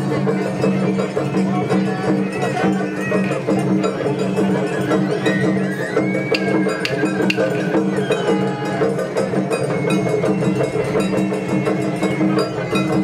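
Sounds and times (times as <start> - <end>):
crowd voices: 0.0 - 13.0
drums beating rhythmically: 0.0 - 13.0
small metal gong clanging: 6.4 - 13.0.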